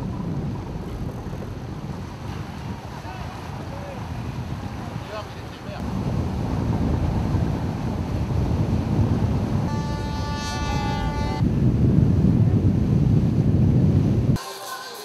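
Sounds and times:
water rushing past boat: 0.0s - 14.2s
wind buffeting microphone: 0.0s - 14.4s
horn blast: 9.7s - 11.4s.

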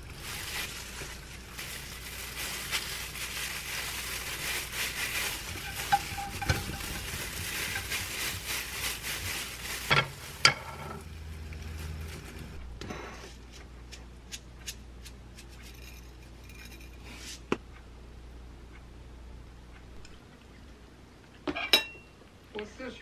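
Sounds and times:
plastic gloves crinkling: 0.0s - 12.6s.

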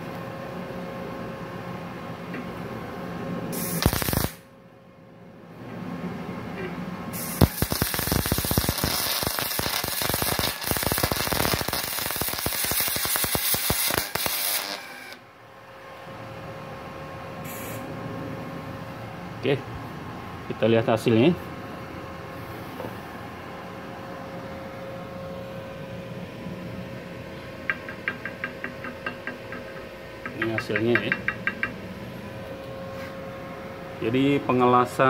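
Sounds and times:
welding arc crackling and sizzling: 3.6s - 4.4s, 7.2s - 15.2s.

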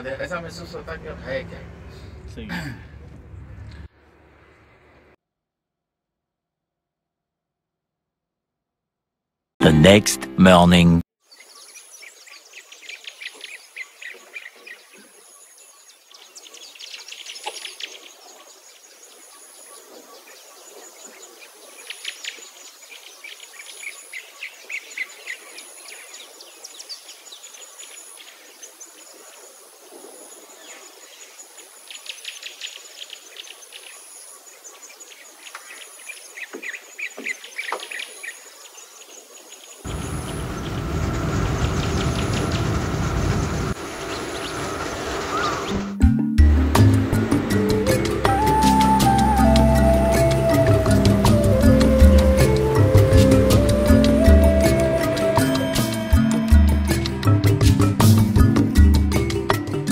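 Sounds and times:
small birds chirping trills: 11.2s - 46.0s.

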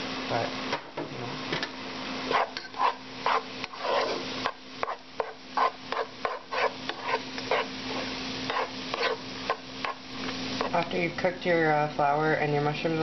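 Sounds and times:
spoon scraping in a pot: 2.3s - 10.0s.

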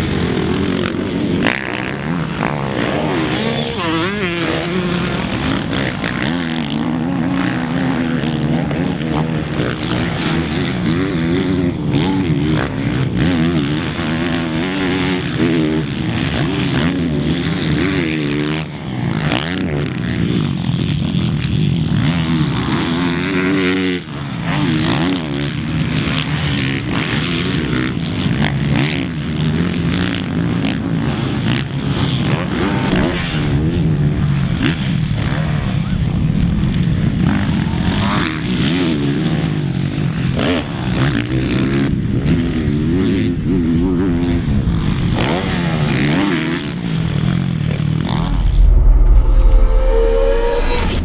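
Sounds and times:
motocross bike engine revving: 0.0s - 51.0s
deep rumble: 47.8s - 51.0s.

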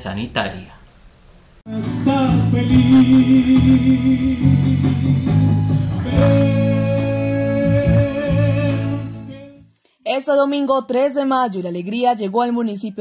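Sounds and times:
bass: 1.6s - 9.8s
person singing long notes: 1.7s - 9.6s
guitar: 1.7s - 9.7s.

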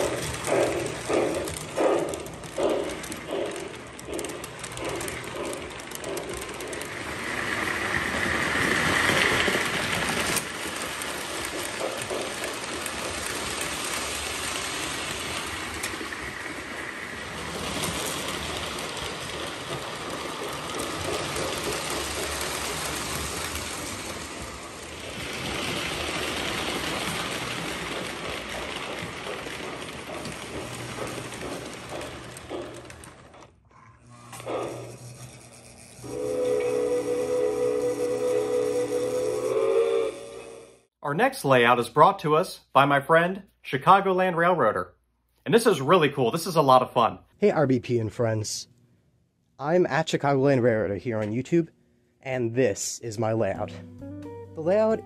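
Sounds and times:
model train rumbling on track: 0.0s - 33.5s, 34.1s - 40.9s.

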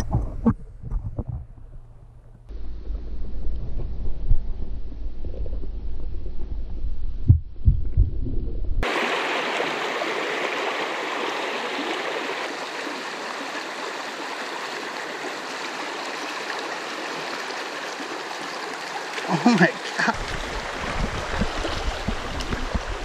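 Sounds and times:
stream water rushing: 8.8s - 23.0s.

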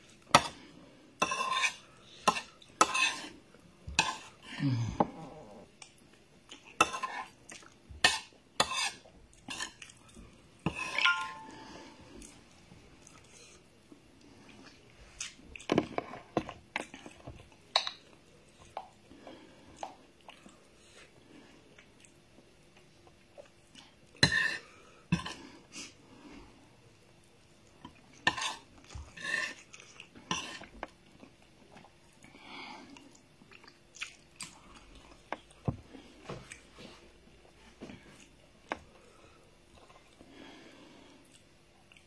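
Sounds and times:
spoon clinking on a plate: 10.8s - 11.6s
mouth smacking and chewing: 33.0s - 35.2s.

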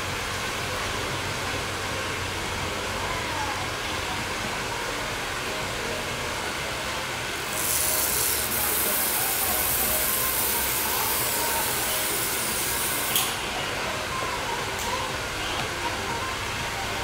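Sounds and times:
steady hiss: 6.6s - 13.5s.

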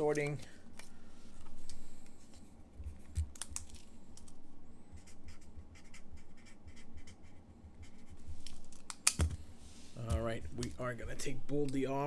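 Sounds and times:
felt-tip marker scratching on paper: 5.0s - 8.2s.

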